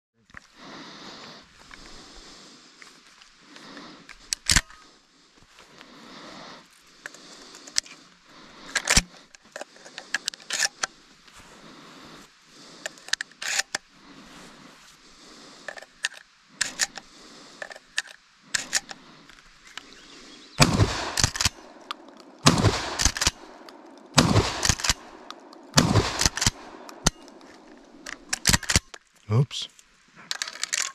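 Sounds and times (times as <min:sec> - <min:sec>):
shotgun action clicking: 0:15.7 - 0:19.0, 0:20.6 - 0:29.0
shotgun blasts: 0:20.6 - 0:21.7, 0:22.4 - 0:23.6, 0:24.2 - 0:27.2.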